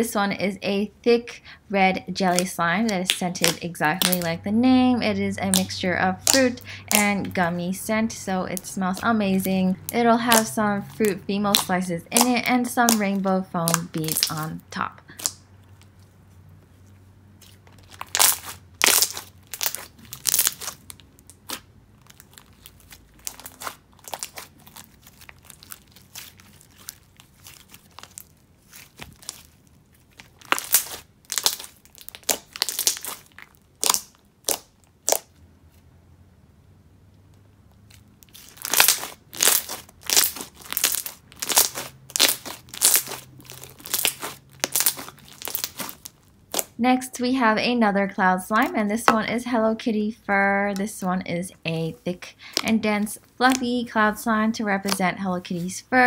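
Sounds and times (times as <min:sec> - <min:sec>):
slime crackling and popping: 0:02.2 - 0:04.4, 0:05.4 - 0:07.6, 0:08.5 - 0:15.9, 0:17.4 - 0:35.4, 0:37.8 - 0:46.8, 0:52.4 - 0:54.2, 0:54.8 - 0:55.0.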